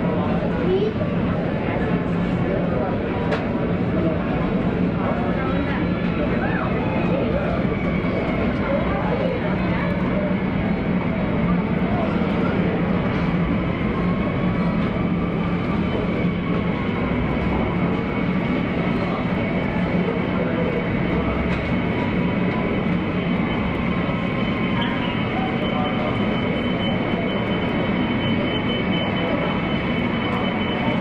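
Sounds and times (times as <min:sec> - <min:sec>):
jet engines whining at idle: 0:00.0 - 0:31.0.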